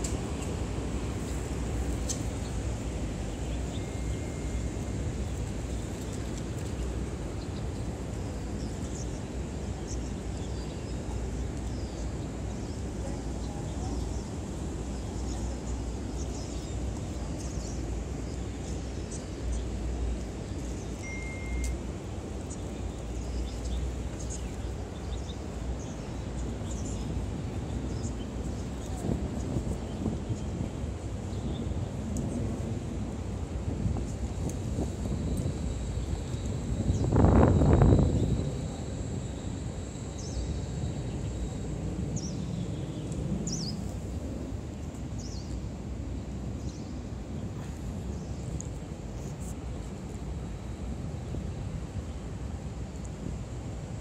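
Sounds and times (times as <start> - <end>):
low rumble of city ambience: 0.0 - 54.0
faint high chirps: 20.9 - 21.9.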